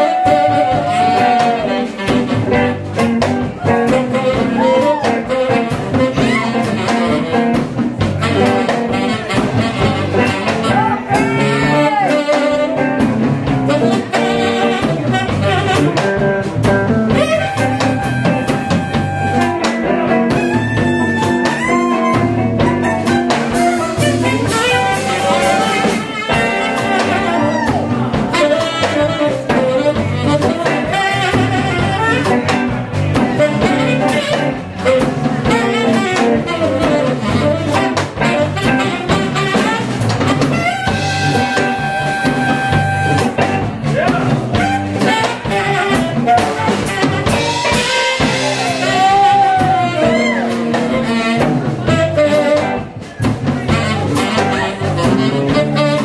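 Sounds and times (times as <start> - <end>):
tenor saxophone melody: 0.0 - 43.8, 44.5 - 56.0
drum kit: 0.0 - 56.0.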